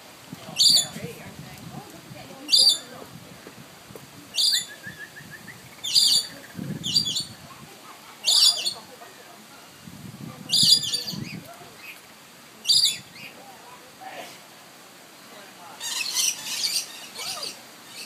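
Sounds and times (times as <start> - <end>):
parrot screeches: 15.8 - 18.0.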